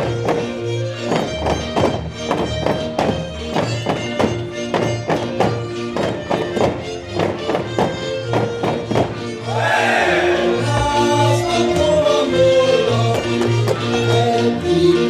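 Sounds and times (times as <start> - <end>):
sharp rhythmic knocks: 0.0 - 9.4
folk dance music: 0.0 - 15.0
group of voices: 9.4 - 13.1.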